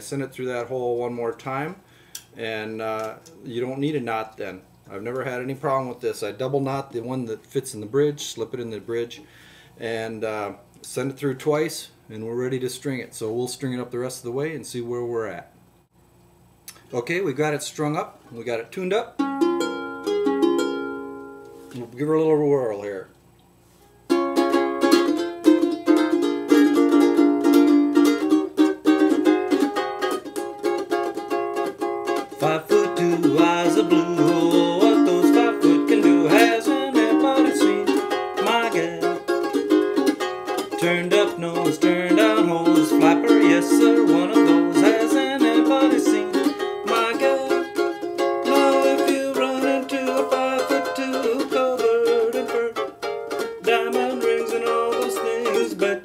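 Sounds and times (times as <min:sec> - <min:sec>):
ukulele strummed in chords: 0:19.2 - 0:21.7, 0:24.0 - 0:56.0.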